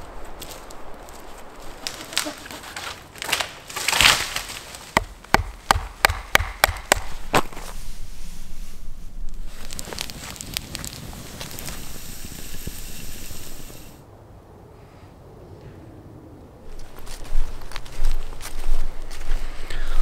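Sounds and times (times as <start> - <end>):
rasping crunch of wood: 1.8 - 7.8
sharp wooden knocks: 5.0 - 7.5.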